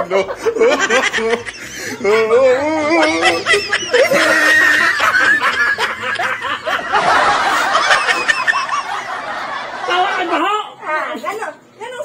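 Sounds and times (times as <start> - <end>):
people laughing hard: 0.0 - 10.4
high-pitched squeal of laughter: 2.1 - 5.8.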